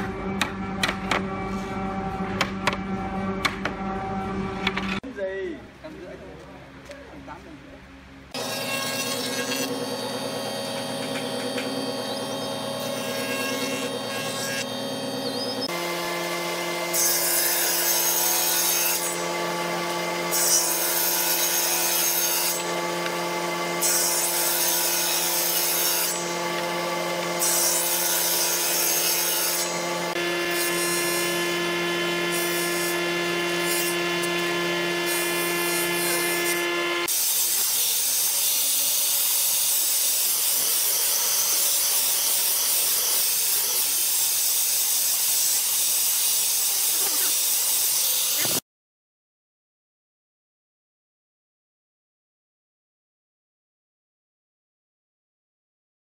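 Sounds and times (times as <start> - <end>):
jointer-planer humming: 8.4 - 37.4
angle grinder sanding wood: 8.4 - 48.6.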